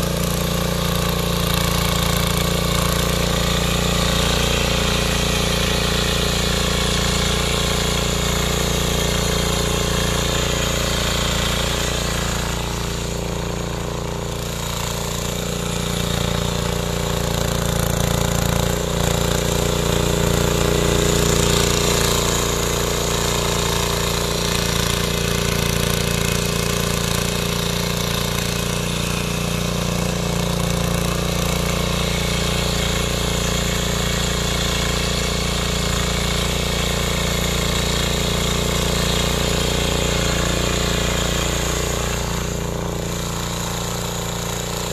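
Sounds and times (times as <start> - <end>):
small tiller engine running: 0.0 - 44.9
tines churning soil: 0.0 - 44.9.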